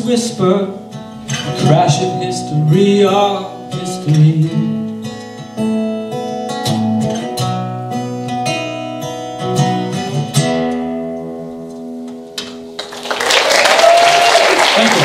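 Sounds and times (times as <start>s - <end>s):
acoustic guitar playing: 0.0s - 13.1s
audience applause: 12.8s - 15.0s.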